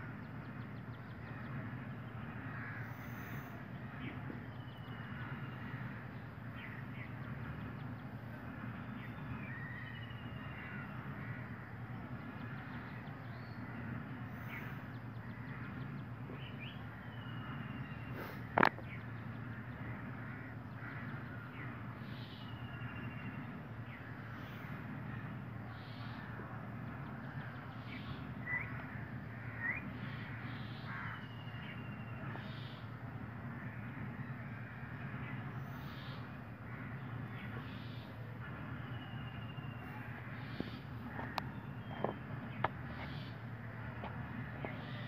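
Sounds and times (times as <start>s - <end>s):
steady low hum: 0.0s - 45.0s
crows cawing: 1.2s - 4.0s, 10.5s - 11.8s, 19.5s - 21.7s, 28.4s - 32.7s, 33.4s - 38.8s, 39.8s - 43.4s.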